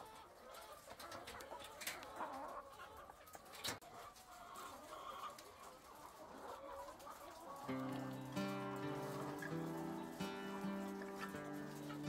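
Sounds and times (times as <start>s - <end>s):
hens clucking and calling: 0.0s - 12.0s.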